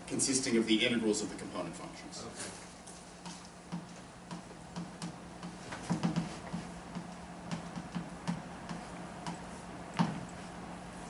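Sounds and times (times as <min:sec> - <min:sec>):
steady low hum: 0:00.0 - 0:11.0
chalk tapping on a blackboard: 0:03.2 - 0:10.3.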